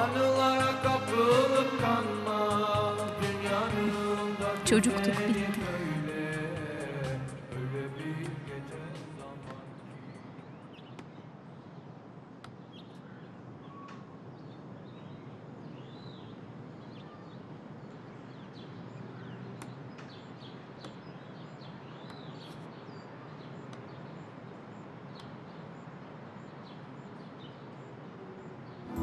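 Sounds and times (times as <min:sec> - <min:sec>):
small birds chirping: 0:09.2 - 0:29.0.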